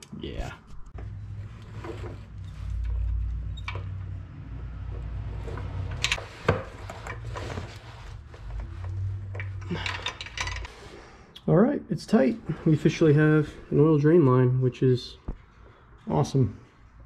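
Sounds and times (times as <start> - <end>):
metal clicks and knocks: 9.3 - 10.7.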